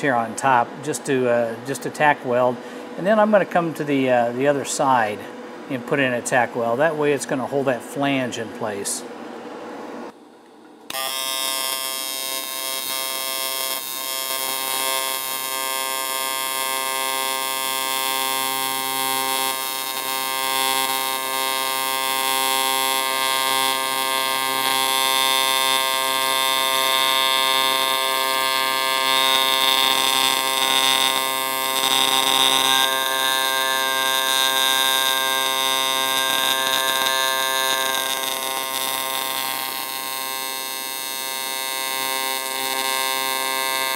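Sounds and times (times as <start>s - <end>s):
welding arc buzzing: 10.9s - 43.9s.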